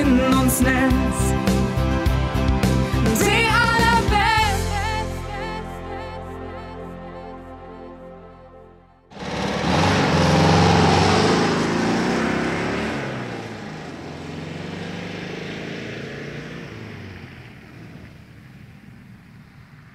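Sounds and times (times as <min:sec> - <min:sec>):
vehicle engine driving off: 0:09.1 - 0:19.9.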